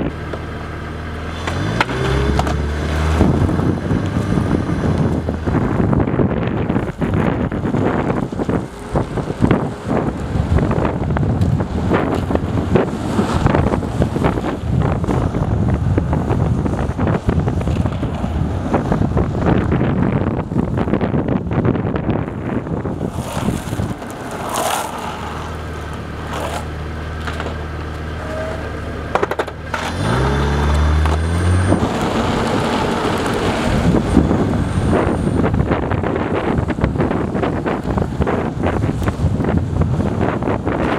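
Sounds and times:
road and tyre noise: 0.0s - 40.9s
car engine revving: 0.8s - 20.9s, 29.7s - 39.2s
wind buffeting microphone: 1.6s - 24.6s, 29.9s - 40.9s.

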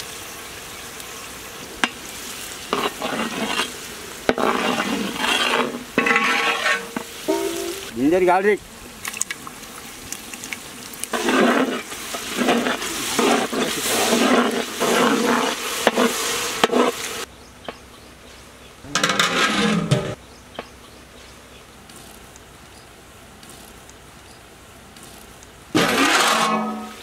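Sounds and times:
food sizzling in hot oil: 0.0s - 8.0s, 9.4s - 17.3s.

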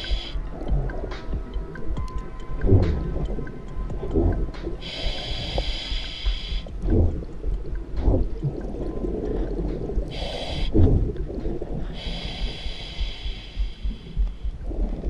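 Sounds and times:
regulator hissing inhales: 0.0s - 0.4s, 4.8s - 6.7s, 10.1s - 10.8s, 12.0s - 14.2s.

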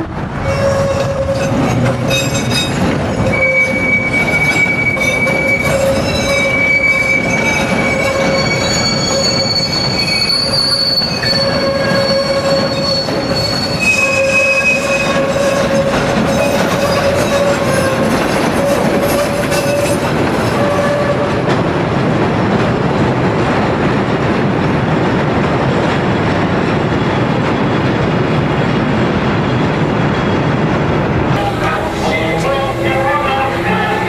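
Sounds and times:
train wheels rumbling on rail: 0.0s - 34.0s
train wheels squealing: 0.4s - 21.2s.

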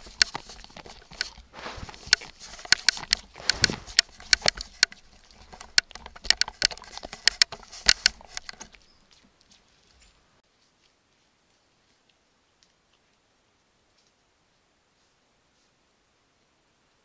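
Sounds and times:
sharp clicks and snaps: 0.0s - 8.8s
light rustling: 0.0s - 10.3s.

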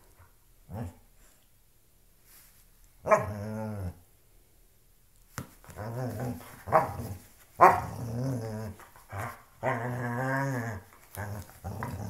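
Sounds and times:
dog growling in play: 3.0s - 4.0s, 5.8s - 12.0s.

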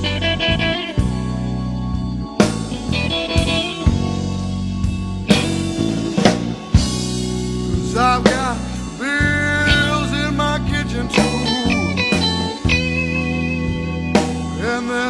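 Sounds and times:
bent guitar notes: 0.0s - 15.0s
blues rock band playing: 0.0s - 15.0s
drum hits: 4.9s - 8.5s.

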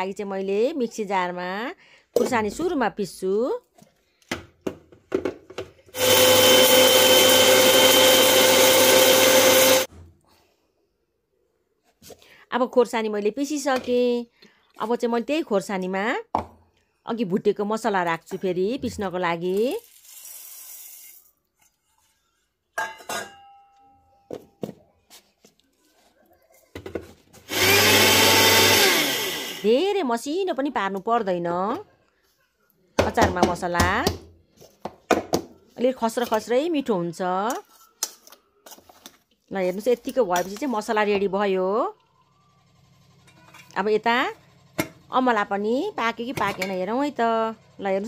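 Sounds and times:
mixer grinder whining: 6.0s - 9.9s, 27.5s - 29.8s
spices trickling into steel jar: 19.8s - 21.2s.

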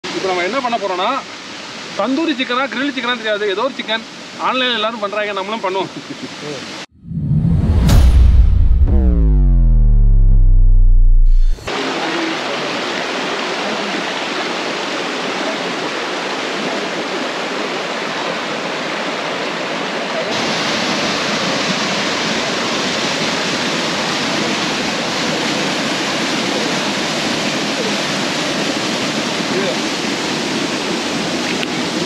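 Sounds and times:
small waterfall rushing: 0.0s - 6.9s, 11.7s - 32.0s
water rushing over rocks: 11.4s - 32.0s.

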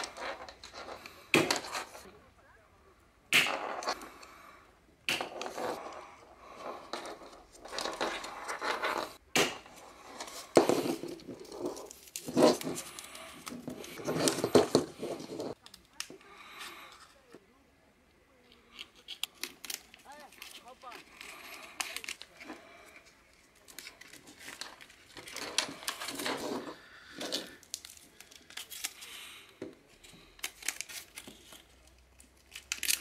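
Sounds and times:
plastic fan parts scraping: 0.0s - 2.1s, 3.4s - 4.4s, 5.1s - 17.4s, 18.4s - 33.0s.

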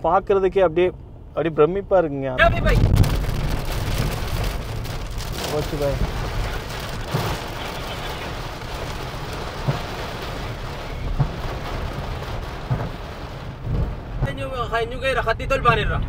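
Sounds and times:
heavy rain on car roof: 2.4s - 16.0s
low rumble: 2.4s - 16.0s
sharp knocks on car body: 12.6s - 13.0s.

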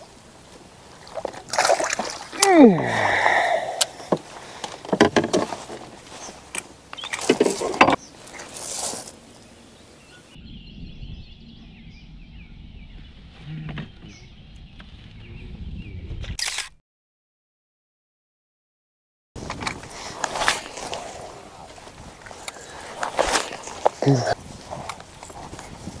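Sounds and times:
water splashing: 0.8s - 4.6s
steady low rumble: 10.4s - 16.4s.

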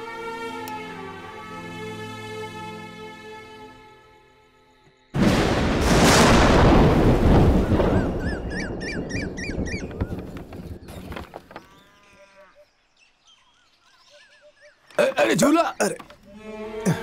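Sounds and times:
thunderclap rumbling: 5.2s - 10.9s
birds chirping: 7.4s - 17.0s.

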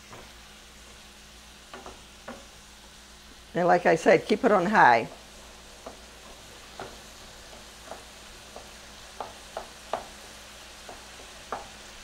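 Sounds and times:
meat and vegetables sizzling: 0.0s - 12.0s
wooden spoon scraping a pan: 4.6s - 12.0s.

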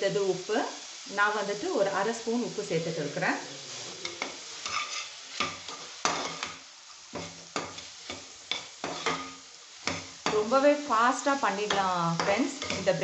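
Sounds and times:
vegetables sizzling in oil: 0.0s - 13.0s
ladle scraping a metal pan: 4.0s - 6.5s.

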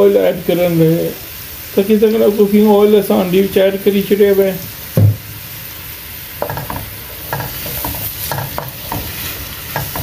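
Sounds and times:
food sizzling in a wok: 0.0s - 10.0s
wooden spoon scraping a wok: 6.4s - 10.0s.

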